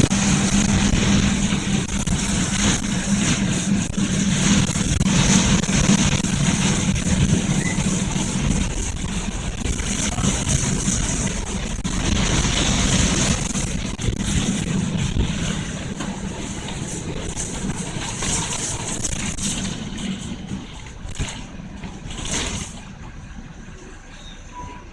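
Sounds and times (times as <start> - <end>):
wind noise: 0.0 - 21.4
vehicle engine running: 0.0 - 24.9.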